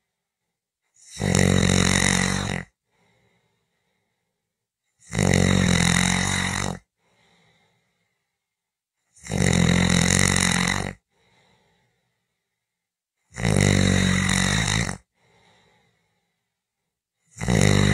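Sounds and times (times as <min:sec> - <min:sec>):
person snoring: 0:00.9 - 0:04.0, 0:05.0 - 0:08.2, 0:09.1 - 0:12.2, 0:13.3 - 0:16.4, 0:17.3 - 0:17.9
faint breath: 0:02.8 - 0:04.5, 0:07.0 - 0:08.6, 0:11.1 - 0:12.8, 0:15.1 - 0:16.6.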